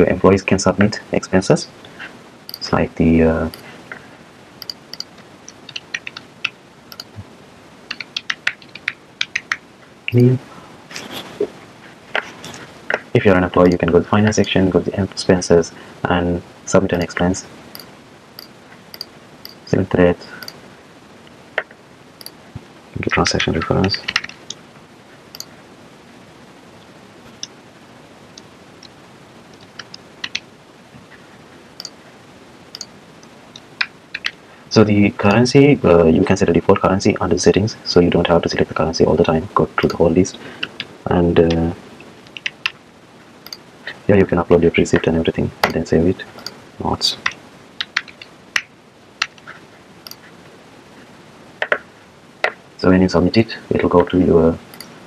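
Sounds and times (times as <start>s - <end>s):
faint steady hiss: 0.0s - 55.0s
computer keyboard keystrokes: 4.6s - 6.2s, 7.9s - 10.2s.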